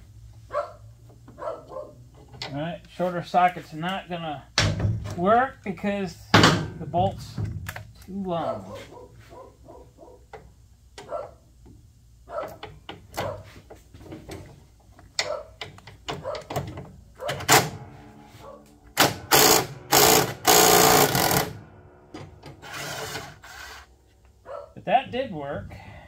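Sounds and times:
impact wrench hammering: 18.9s - 23.4s.

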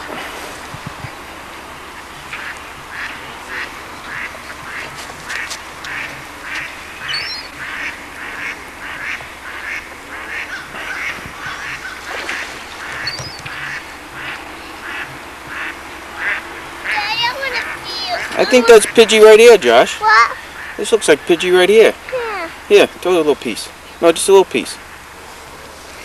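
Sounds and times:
duck quacking: 1.9s - 19.3s.

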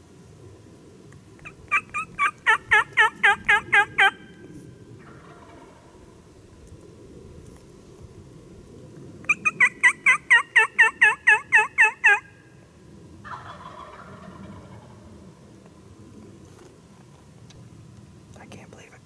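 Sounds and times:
turkey call yelps: 1.4s - 4.4s, 9.3s - 12.4s, 13.3s - 14.9s.

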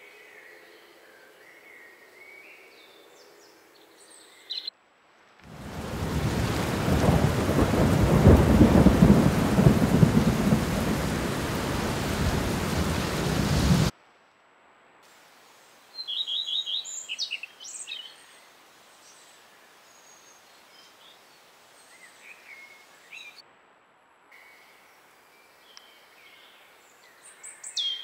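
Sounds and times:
bird chirps: 4.0s - 4.7s, 16.0s - 18.4s, 25.4s - 28.0s.

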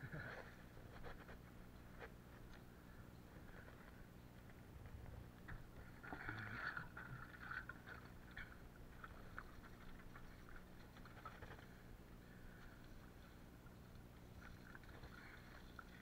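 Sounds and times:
water sloshing and splashing: 5.5s - 16.0s.

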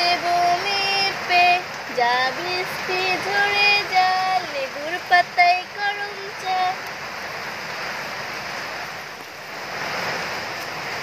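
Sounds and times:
person singing: 0.0s - 6.8s
steady rain hiss: 0.0s - 11.0s.

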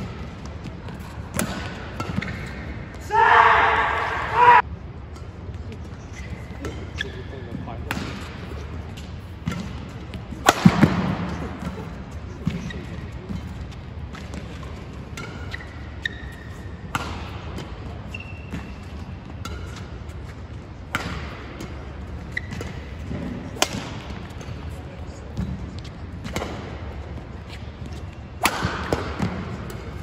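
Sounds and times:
shoes squeaking on court: 0.0s - 3.0s, 5.7s - 10.4s, 11.6s - 30.0s
rackets striking shuttlecock: 7.9s - 11.4s, 16.8s - 20.0s, 20.8s - 24.6s, 28.3s - 30.0s.

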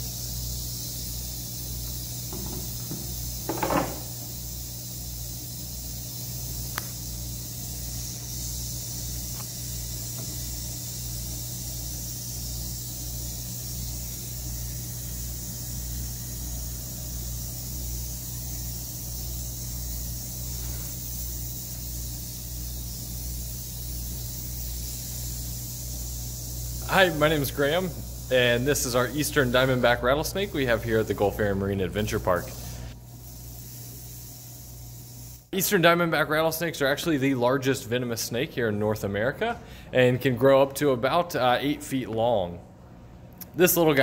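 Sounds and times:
rattlesnake rattling: 0.0s - 37.4s.

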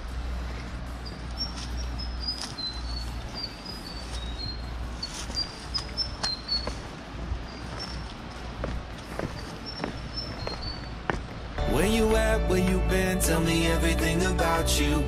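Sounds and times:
low steady rumble: 0.0s - 2.2s
steps and scrapes on stone: 0.6s - 7.0s, 7.6s - 11.4s
small bird chirping: 1.0s - 8.2s, 9.1s - 11.0s.

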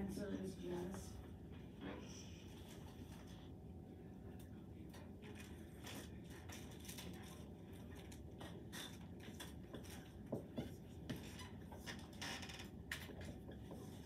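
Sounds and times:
marker writing on whiteboard: 6.0s - 12.2s, 12.9s - 14.0s.

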